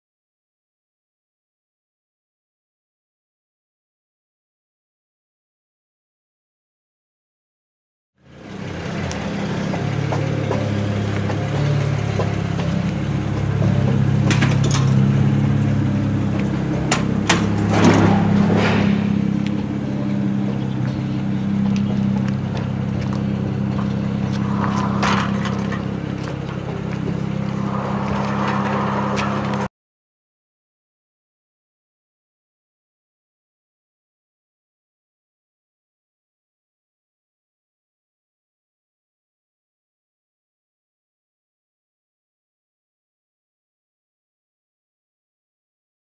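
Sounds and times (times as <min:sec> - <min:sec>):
car engine running: 0:08.2 - 0:29.7.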